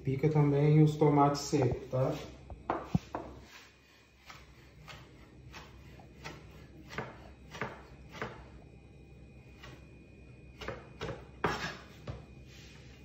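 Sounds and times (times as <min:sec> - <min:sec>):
knife chopping on plastic board: 0:04.2 - 0:08.6, 0:10.5 - 0:12.2.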